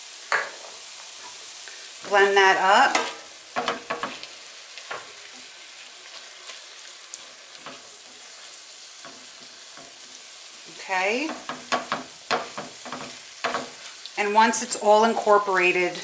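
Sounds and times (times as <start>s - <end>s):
meat sizzling in a pan: 0.0s - 16.0s
spatula scraping a pan: 2.0s - 14.1s.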